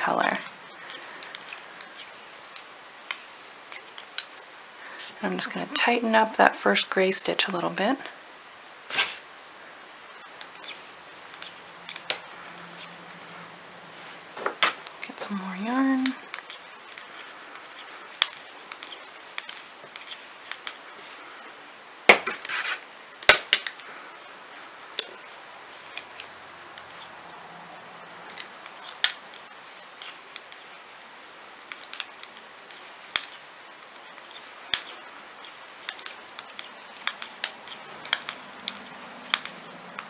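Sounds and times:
knitting needles clicking: 0.1s - 4.4s, 10.2s - 13.0s, 14.8s - 20.9s, 24.9s - 27.4s, 28.2s - 40.0s.

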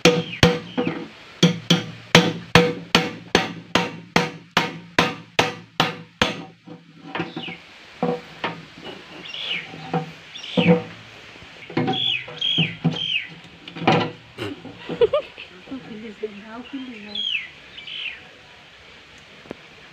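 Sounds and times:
tools knocking and scraping on lid: 0.0s - 11.0s, 11.7s - 15.1s.

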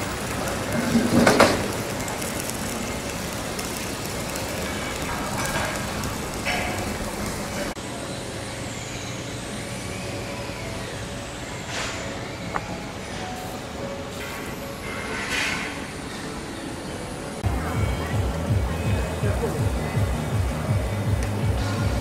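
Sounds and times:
fire crackling: 0.0s - 7.8s, 17.4s - 22.0s
wood fire rushing: 0.0s - 7.8s.

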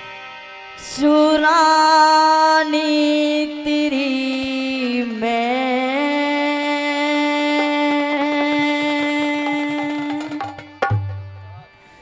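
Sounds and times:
harmonium holding a note: 0.0s - 12.0s
hand drum strokes: 7.3s - 11.8s.

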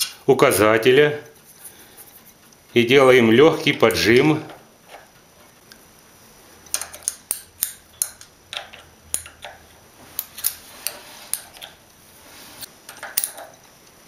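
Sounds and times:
wrench clicking on metal bolts: 6.7s - 9.6s, 12.9s - 13.6s.

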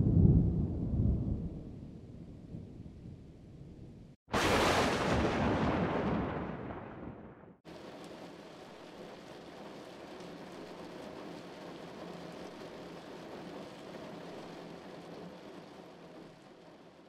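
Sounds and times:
rain falling steadily: 4.3s - 17.0s.

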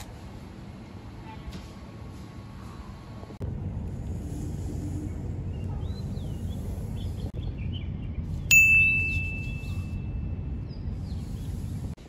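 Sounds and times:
low background rumble: 2.0s - 8.5s
bright bell ding: 8.5s - 9.7s.

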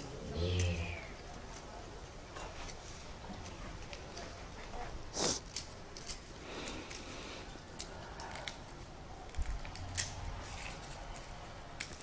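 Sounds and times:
garlic skins crackling: 0.0s - 1.8s, 5.1s - 12.0s.

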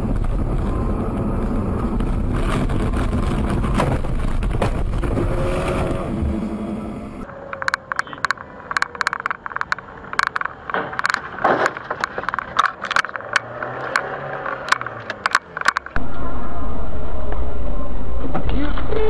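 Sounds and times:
car engine rumble: 0.0s - 18.9s
road noise: 0.0s - 19.0s
irregular clicks and rattles: 7.6s - 16.0s.

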